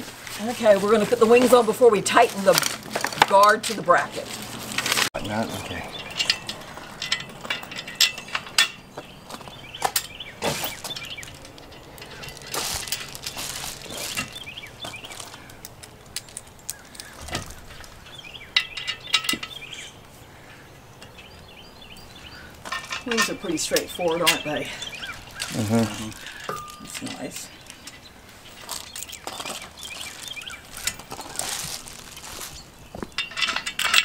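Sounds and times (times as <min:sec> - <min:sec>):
metal parts clinking: 0:06.0 - 0:20.0, 0:22.0 - 0:34.0.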